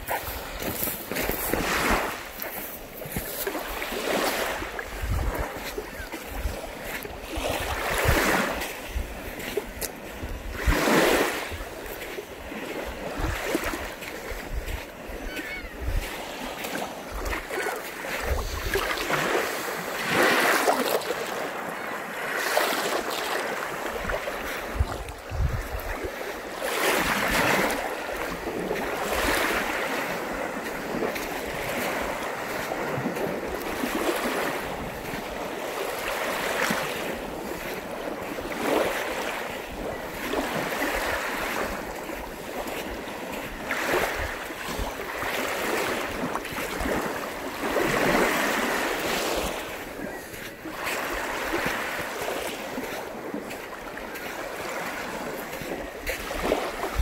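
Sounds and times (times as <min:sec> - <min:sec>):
wind rumbling on microphone: 0:00.0 - 0:19.3, 0:23.8 - 0:34.1
waves washing onto beach: 0:00.0 - 0:57.0.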